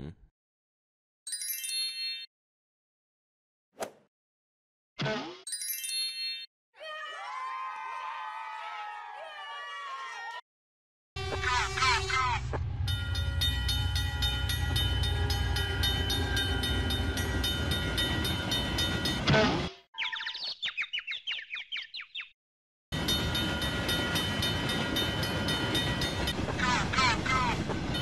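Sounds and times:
cartoon train rumble and rail clatter: 11.2s - 19.7s, 23.0s - 28.0s
falling cartoon chirps: 20.0s - 22.2s.

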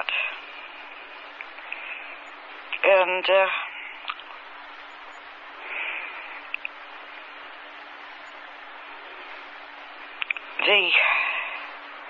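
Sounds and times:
low hum: 0.0s - 12.0s
recording hiss: 0.0s - 12.0s
faint clicks: 1.4s - 2.8s, 4.0s - 5.2s, 6.4s - 6.8s, 10.2s - 10.5s.

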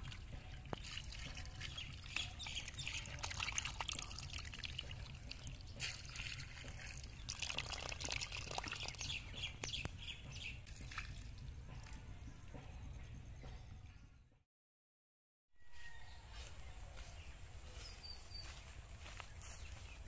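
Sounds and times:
small bubbles popping: 0.0s - 9.8s
muddy water trickling and bubbling: 0.0s - 12.1s.

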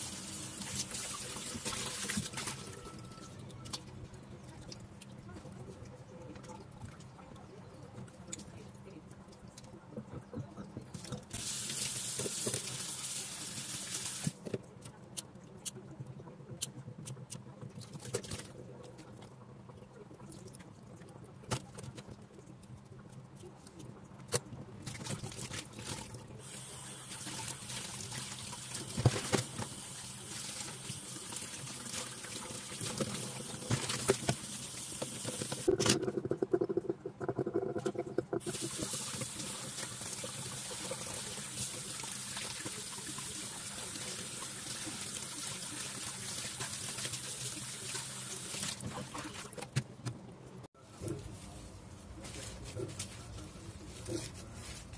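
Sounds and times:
tap water running into sink: 26.5s - 35.7s, 38.4s - 49.1s.

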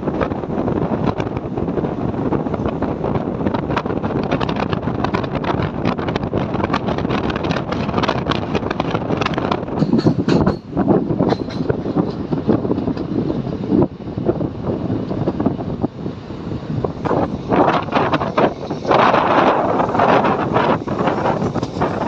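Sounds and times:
train wheels rumbling on track: 0.0s - 22.0s
wind buffeting microphone: 0.0s - 22.0s
wheels clicking and clattering: 2.6s - 13.8s, 17.0s - 22.0s.

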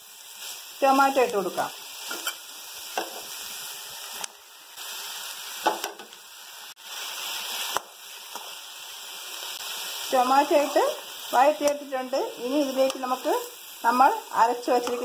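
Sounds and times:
vegetables sizzling in hot oil: 0.0s - 15.0s
steel spoon clinking and scraping: 2.1s - 2.4s.

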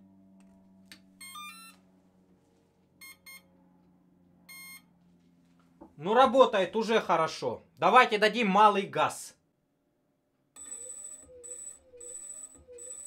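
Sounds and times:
motor start-up chime and beeps: 1.2s - 1.8s, 3.0s - 3.5s, 4.5s - 4.9s, 10.6s - 13.0s.

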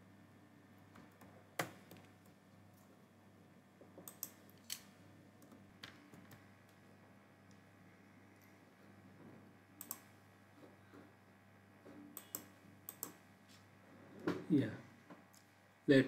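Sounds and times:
faint steady hum: 0.0s - 16.0s
mouse and keyboard clicks: 9.8s - 10.1s, 12.2s - 13.2s.

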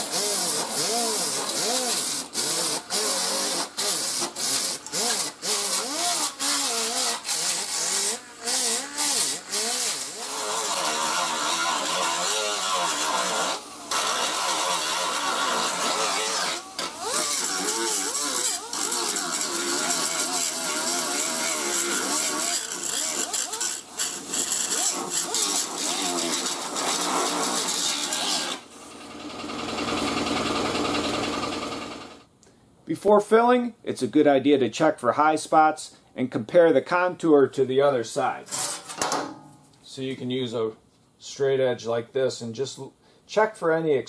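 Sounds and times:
disc grinder on steel: 0.0s - 28.7s
abrasive wheel grinding: 0.1s - 28.6s.

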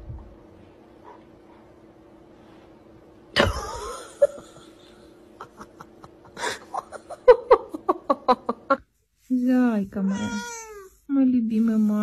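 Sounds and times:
person laughing: 3.4s - 8.8s.

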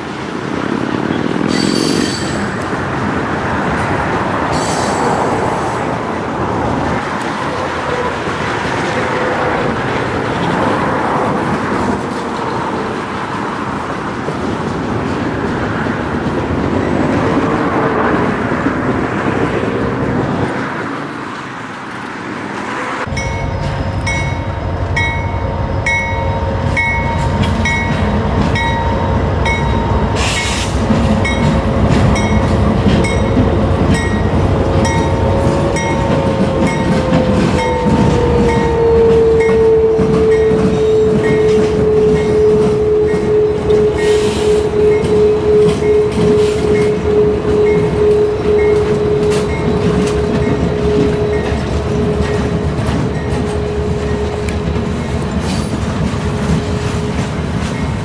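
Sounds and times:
train rumbling past: 0.0s - 58.0s.

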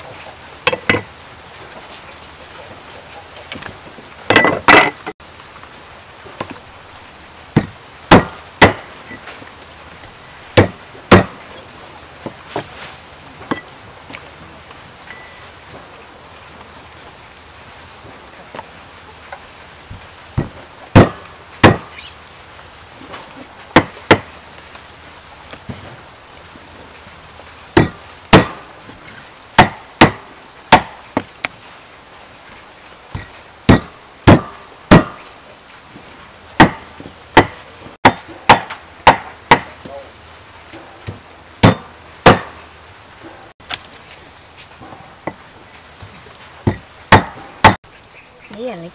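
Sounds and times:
cleaver chopping on a board: 7.6s - 8.8s, 10.6s - 11.4s, 20.4s - 21.9s, 27.8s - 28.6s, 29.6s - 31.3s, 33.2s - 35.2s, 36.6s - 36.8s, 37.4s - 39.7s, 41.6s - 42.5s, 46.7s - 47.8s.

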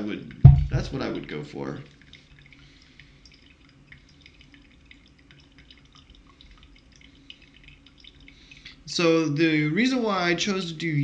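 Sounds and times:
coffee dripping into mug: 0.0s - 9.0s.

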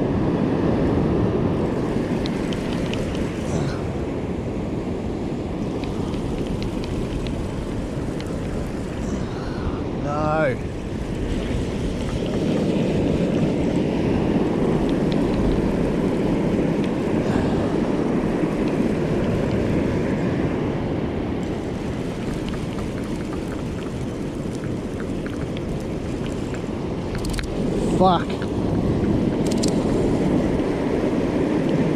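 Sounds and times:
surf washing: 0.0s - 31.9s
wind buffeting microphone: 0.0s - 31.9s
faint clicks: 8.1s - 8.6s, 22.2s - 27.6s.

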